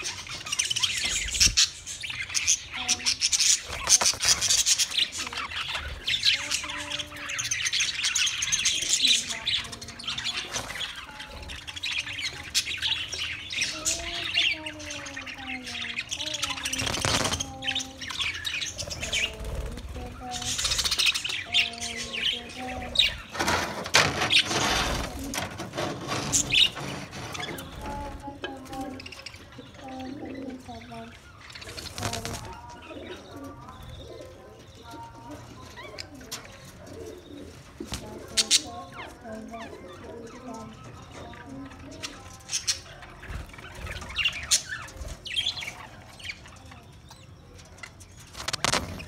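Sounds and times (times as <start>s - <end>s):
budgerigars chirping and chattering: 0.0s - 49.0s
wings flapping: 3.5s - 6.4s, 16.5s - 17.8s, 22.9s - 29.0s, 31.6s - 32.6s, 48.2s - 49.0s
flapping wings: 16.6s - 17.8s, 31.8s - 32.6s, 48.3s - 49.0s.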